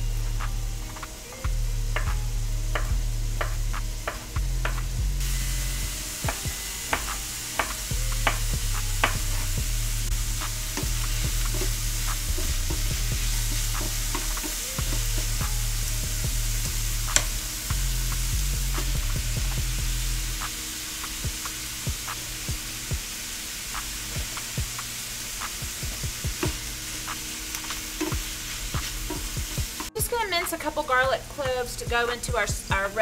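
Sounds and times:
onions sizzling in a frying pan: 0.0s - 33.0s.

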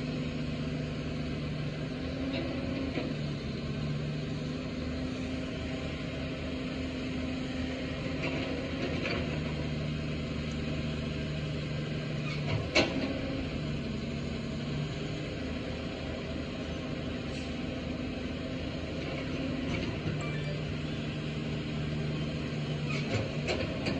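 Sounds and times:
excavator diesel engine running: 0.0s - 23.9s.

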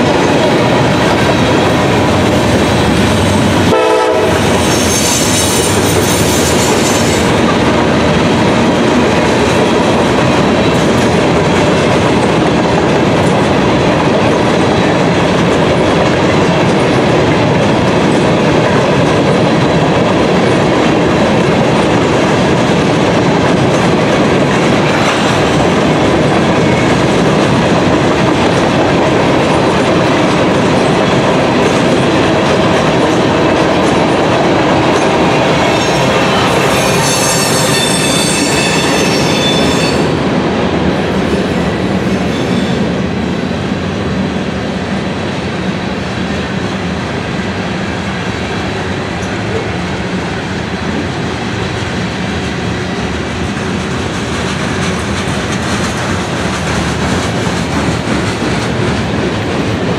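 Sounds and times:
clickety-clack over rail joints: 0.0s - 43.8s, 48.5s - 59.9s
train wheels rumbling and rattling: 0.0s - 59.9s
high wheel squeal: 4.6s - 7.3s, 35.7s - 40.2s.

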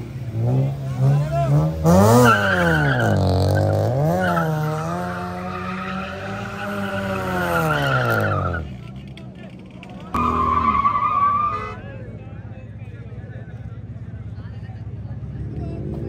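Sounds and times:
car engine revving: 0.0s - 11.6s
tyres squealing: 10.1s - 11.8s.

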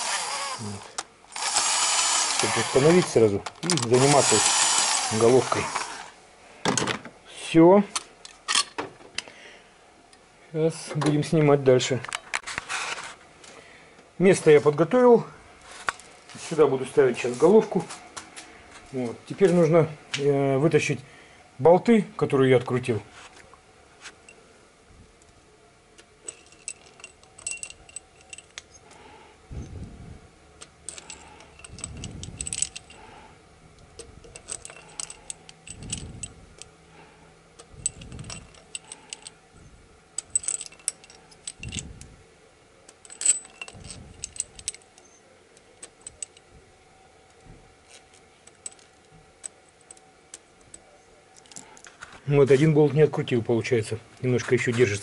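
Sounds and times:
metal bolts clinking in a hand: 26.2s - 28.9s, 30.6s - 33.1s, 34.0s - 36.7s, 37.6s - 39.4s, 40.2s - 42.0s, 42.9s - 45.2s, 45.8s - 46.5s, 47.9s - 51.9s.

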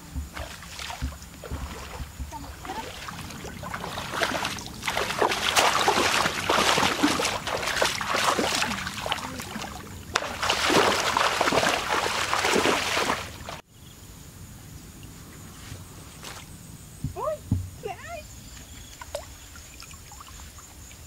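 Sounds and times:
wading through muddy water: 0.0s - 13.6s.

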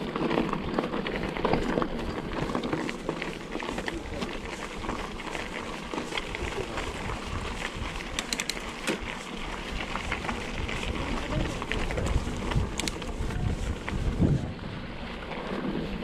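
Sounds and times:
bike rattling and clicking: 0.0s - 16.0s
bike tyres rumbling: 0.0s - 16.0s
wind on microphone: 9.7s - 16.0s.

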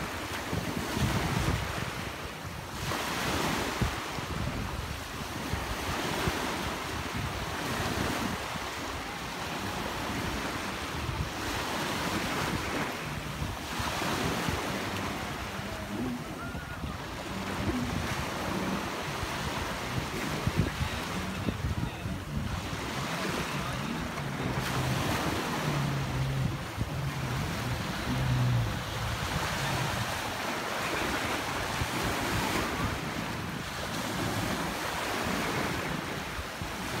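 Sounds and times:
jet ski engines: 0.0s - 37.0s
waves washing in shallows: 0.0s - 37.0s
wind buffeting microphone: 0.0s - 37.0s.

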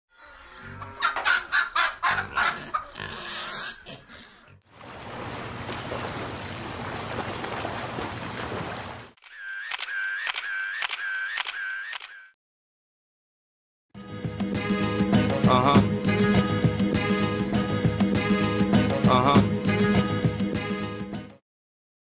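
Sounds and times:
camera shutter clicks: 9.2s - 12.3s
short pitched calls with clicks: 9.2s - 12.4s.

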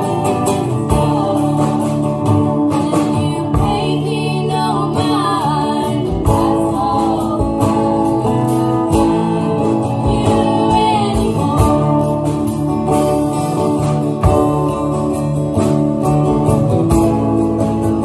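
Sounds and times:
person singing: 0.0s - 12.6s
strummed guitars: 0.0s - 18.0s.

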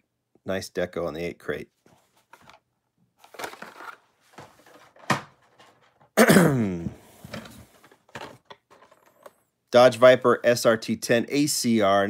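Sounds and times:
packaging rustling: 3.2s - 6.1s.

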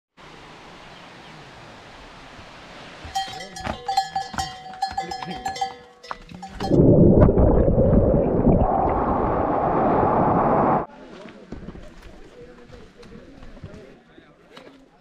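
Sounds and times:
metal bells clanking: 3.1s - 6.8s.

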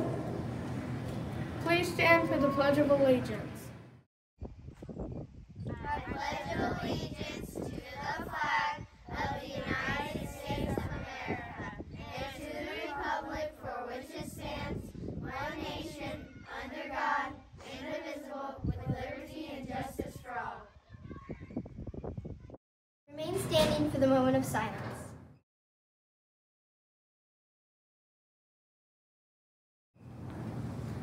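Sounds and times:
children reciting in unison: 5.7s - 20.8s.

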